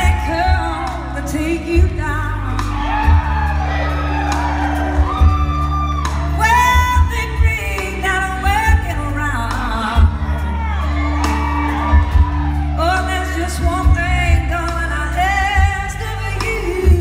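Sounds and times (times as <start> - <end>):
woman singing: 0.0 - 3.6, 6.0 - 17.0
live band playing: 0.0 - 17.0.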